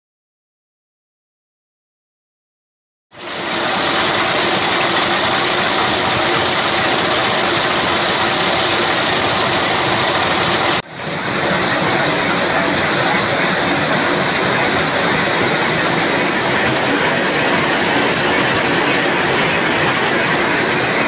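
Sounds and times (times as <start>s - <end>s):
excavator engine running: 3.2s - 21.0s
trencher chain cutting concrete: 3.4s - 10.8s.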